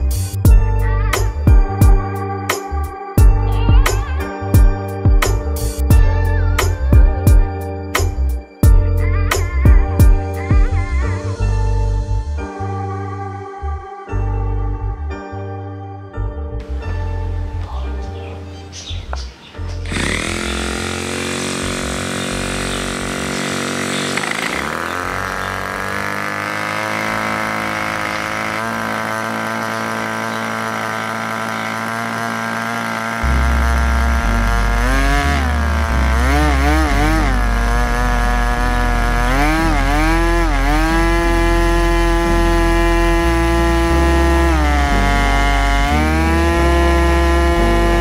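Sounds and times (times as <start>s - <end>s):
model engine running fast: 19.8s - 48.0s
propeller spinning: 19.8s - 48.0s.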